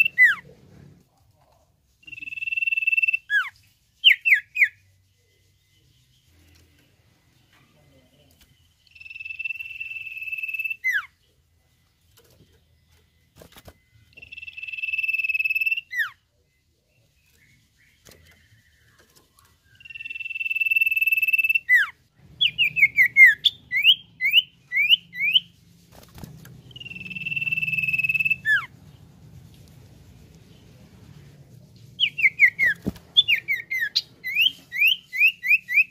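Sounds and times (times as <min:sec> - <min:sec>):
bird whistling: 0:02.1 - 0:04.8, 0:08.9 - 0:11.1, 0:14.2 - 0:16.2, 0:19.7 - 0:25.5, 0:26.7 - 0:28.7, 0:32.0 - 0:35.9.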